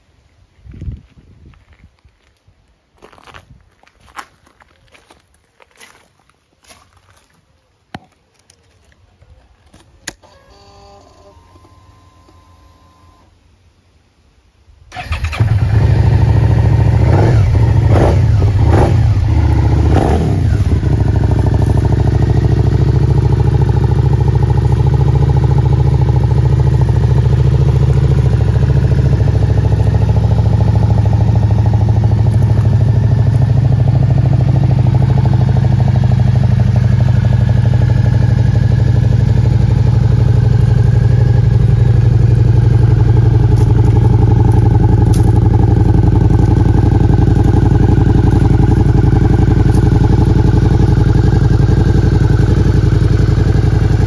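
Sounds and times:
motorcycle engine idling: 0:14.9 - 0:54.0
motorcycle engine starting: 0:14.9 - 0:54.0
motorcycle throttle blips: 0:14.9 - 0:54.0.

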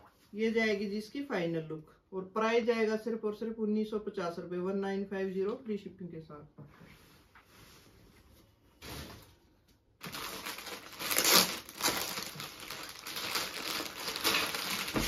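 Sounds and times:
plastic packaging crinkling: 0:10.0 - 0:15.0.

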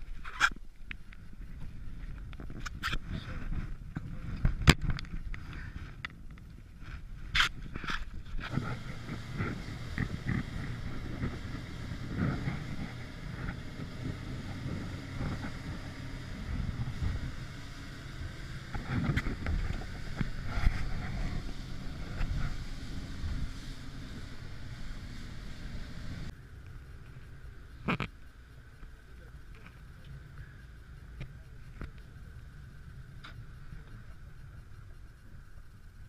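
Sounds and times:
motorboat engine rumble: 0:00.0 - 0:36.0
wind buffeting microphone: 0:01.2 - 0:26.3
hull slapping through waves: 0:08.4 - 0:26.3.

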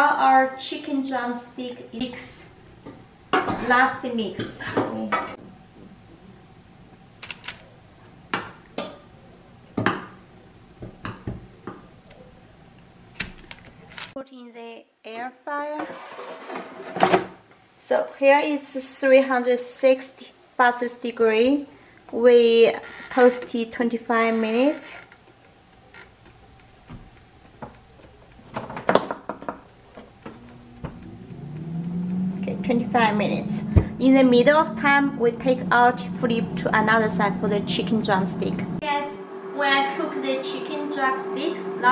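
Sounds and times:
utensil knocking against cookware: 0:28.5 - 0:31.0
timer knob clicking: 0:29.4 - 0:33.2.

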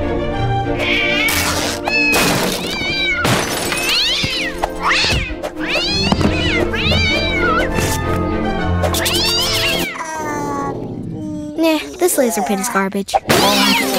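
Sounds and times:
background music: 0:00.0 - 0:12.6, 0:13.2 - 0:13.9
cartoon cat yowling and meowing: 0:00.8 - 0:03.2, 0:09.0 - 0:12.8, 0:13.4 - 0:13.9.

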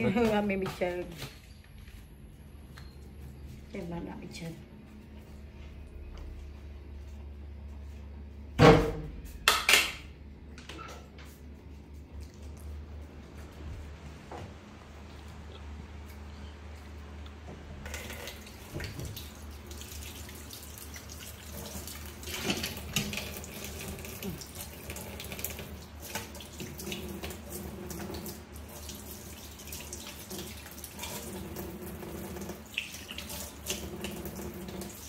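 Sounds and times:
faucet running into sink: 0:17.8 - 0:35.0.

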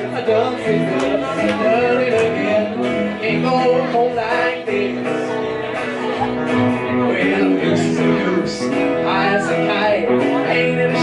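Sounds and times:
guitar: 0:00.0 - 0:11.0
live band playing: 0:00.0 - 0:11.0.

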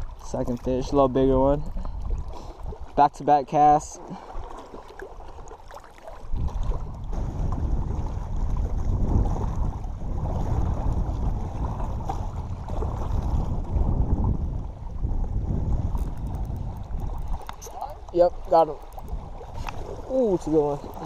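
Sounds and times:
wind buffeting microphone: 0:00.0 - 0:03.1, 0:06.2 - 0:21.0.

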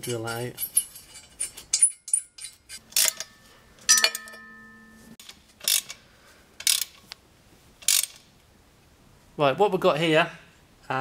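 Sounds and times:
metal clinks of bolts and ratchet: 0:00.0 - 0:04.9, 0:05.6 - 0:06.0, 0:06.6 - 0:07.0, 0:07.8 - 0:08.2.

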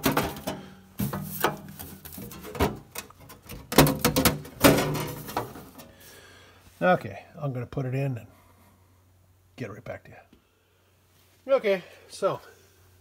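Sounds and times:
sheet metal clanking and scraping: 0:00.0 - 0:05.9.

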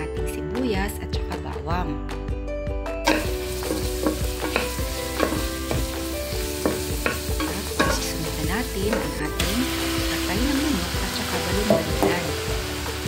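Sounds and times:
onion sizzling in hot oil: 0:03.0 - 0:13.0.

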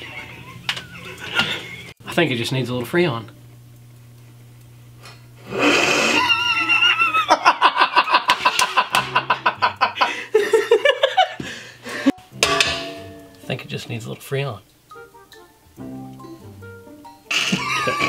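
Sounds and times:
man laughing heartily: 0:00.0 - 0:02.0, 0:06.2 - 0:12.1, 0:17.3 - 0:18.0
steady low hum: 0:00.4 - 0:07.3.

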